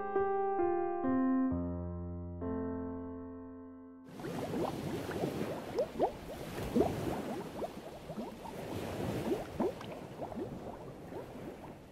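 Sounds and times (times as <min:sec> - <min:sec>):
water bubbling: 0:04.1 - 0:11.9.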